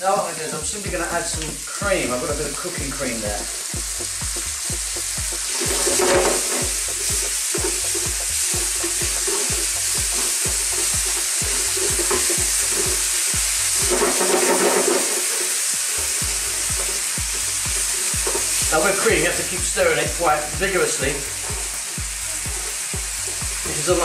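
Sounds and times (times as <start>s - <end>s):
cream sizzling in a pan: 0.0s - 24.0s
background music with low beat: 0.1s - 24.0s
wooden spatula scraping a pan: 3.4s - 19.5s.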